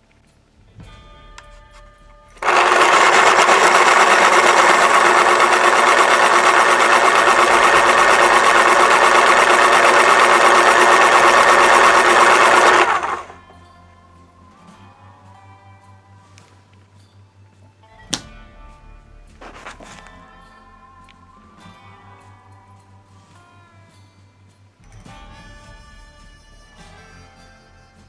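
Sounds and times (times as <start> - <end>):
electric pencil sharpener grinding: 2.4 - 13.4.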